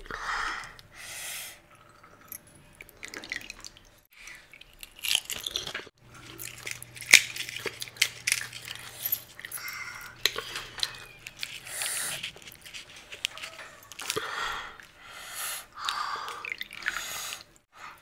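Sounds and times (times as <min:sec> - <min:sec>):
water dripping and splashing: 0:01.7 - 0:09.6, 0:15.6 - 0:17.7
crisp shells cracking: 0:04.5 - 0:15.0.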